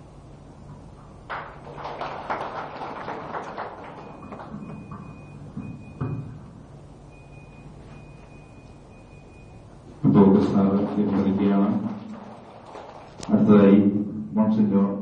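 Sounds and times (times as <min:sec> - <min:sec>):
faint high steady whine: 0:00.0 - 0:15.0
audience hand clapping: 0:01.2 - 0:05.2, 0:10.4 - 0:13.3.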